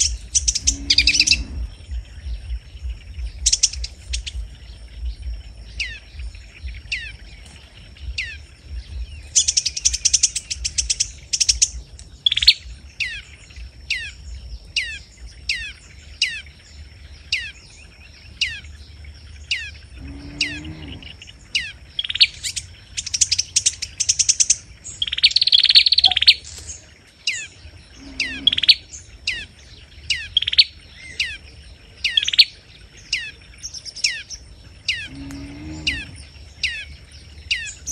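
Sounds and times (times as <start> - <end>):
fast high bird twittering: 0.0 - 16.5, 19.4 - 31.4
sunbird sharp downward call: 25.4 - 26.4.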